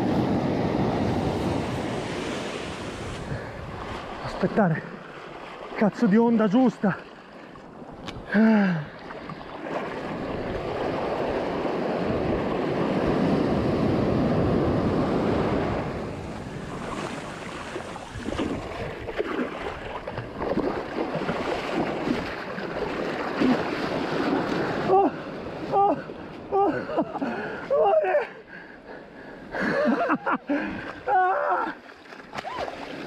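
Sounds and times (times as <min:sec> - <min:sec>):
wave breaking on beach: 0:00.0 - 0:04.5, 0:09.6 - 0:26.2.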